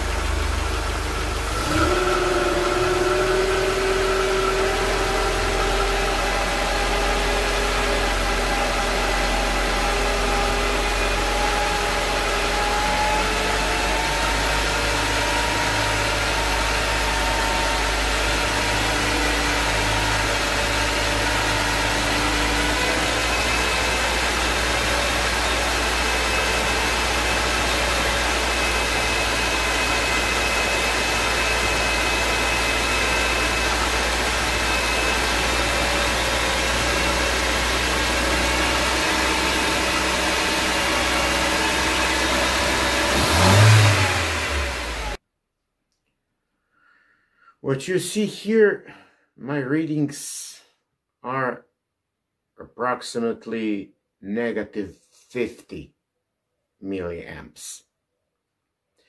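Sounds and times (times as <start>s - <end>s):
car engine running at raised revs: 0.0s - 45.2s.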